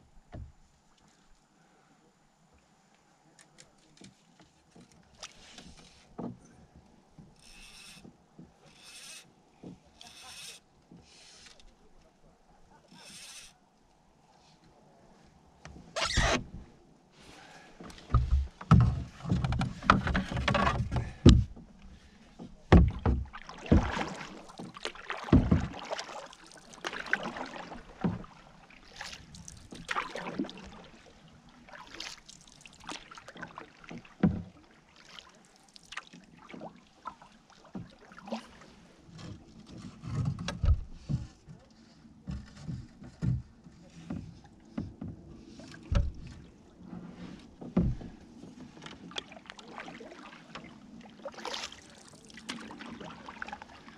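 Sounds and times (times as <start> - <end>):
paddle splashing in water: 4.1 - 13.6, 15.9 - 53.9
knocks against canoe: 17.8 - 21.8, 22.4 - 26.2, 33.5 - 34.6, 37.7 - 41.5, 42.2 - 46.5, 47.4 - 49.3.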